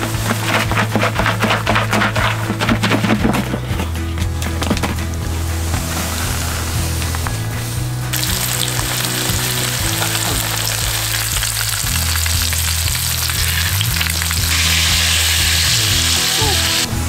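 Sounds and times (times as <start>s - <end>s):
fish frying in hot oil: 8.2s - 15.8s.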